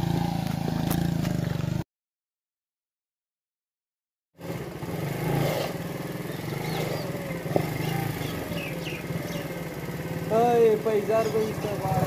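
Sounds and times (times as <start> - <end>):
motorcycle engine idling: 0.0 - 1.8, 4.4 - 12.0.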